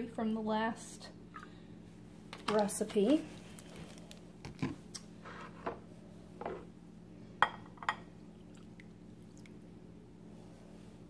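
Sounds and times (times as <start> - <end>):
milk pouring: 8.2 - 9.8.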